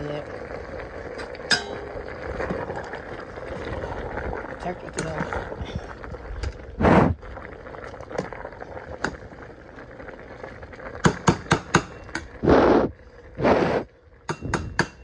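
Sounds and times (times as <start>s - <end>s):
metal spoon tapping a pot: 1.5s - 1.9s, 11.0s - 12.3s, 14.3s - 15.0s.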